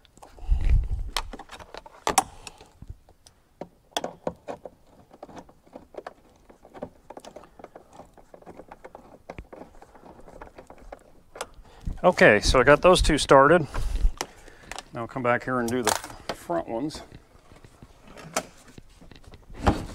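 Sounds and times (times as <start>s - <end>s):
small metallic clicks and rattles: 1.2s - 11.9s.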